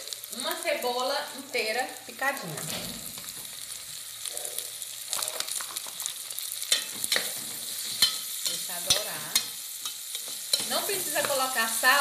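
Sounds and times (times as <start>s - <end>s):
sausage and onion sizzling: 0.0s - 12.0s.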